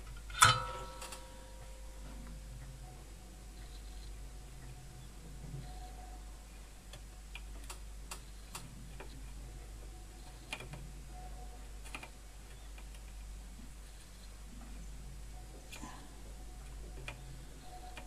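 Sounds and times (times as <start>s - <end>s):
low steady hum: 0.0s - 18.0s
soldering iron clicks and ticks: 6.9s - 9.2s.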